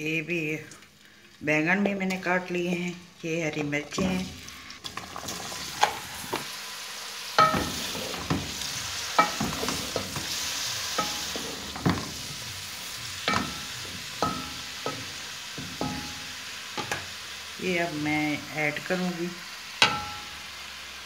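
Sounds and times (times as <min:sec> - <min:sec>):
vegetables sizzling in hot oil: 0:00.0 - 0:21.0
spatula knocking on metal pot: 0:07.4 - 0:08.5, 0:13.3 - 0:16.2
wooden spatula stirring: 0:07.4 - 0:16.2.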